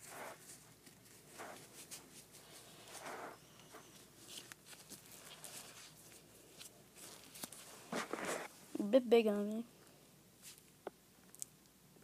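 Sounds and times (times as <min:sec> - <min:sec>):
glove rustling: 0:00.0 - 0:08.5.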